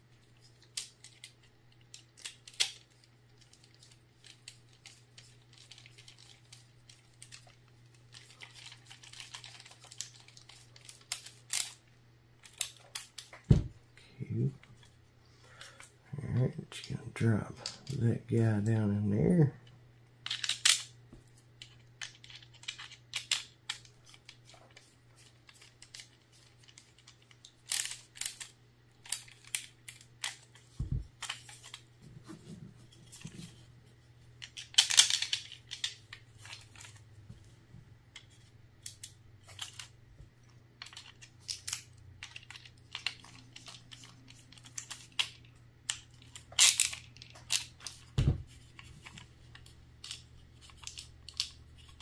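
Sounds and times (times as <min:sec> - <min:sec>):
low steady hum: 0:00.0 - 0:52.0
magazine parts clicking and rattling: 0:00.3 - 0:13.5, 0:20.2 - 0:31.9, 0:34.3 - 0:37.1, 0:38.1 - 0:52.0.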